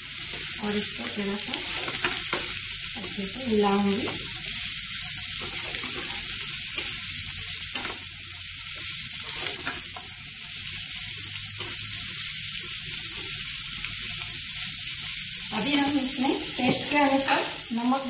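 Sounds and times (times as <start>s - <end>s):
vegetables sizzling in oil: 0.0s - 18.0s
spatula scraping pan: 5.2s - 6.9s, 9.1s - 10.1s.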